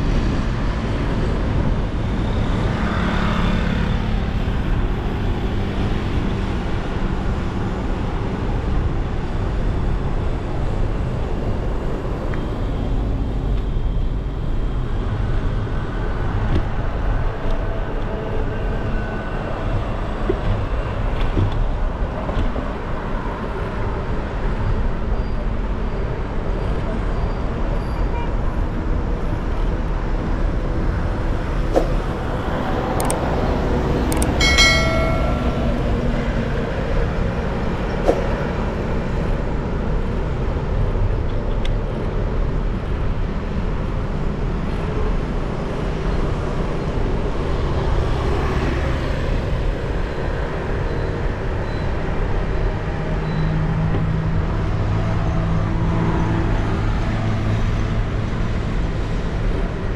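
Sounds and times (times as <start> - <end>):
street traffic rush: 0.0 - 59.9.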